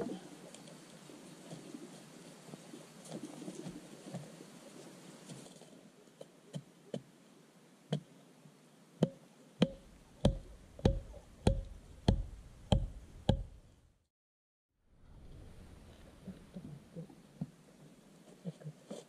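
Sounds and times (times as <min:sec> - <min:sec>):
knife chopping bamboo: 0:09.0 - 0:13.5.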